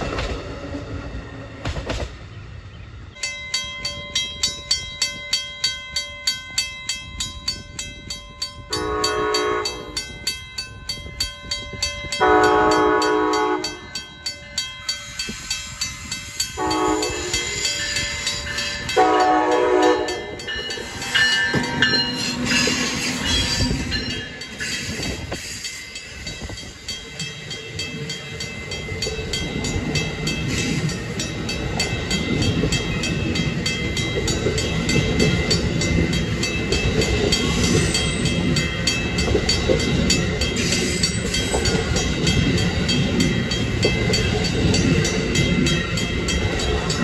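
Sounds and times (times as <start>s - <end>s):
rushing of passing train: 0.0s - 47.0s
crossing bell ringing: 3.1s - 47.0s
train horn blasts: 8.7s - 10.0s, 12.2s - 13.9s, 16.6s - 17.6s, 18.9s - 20.5s.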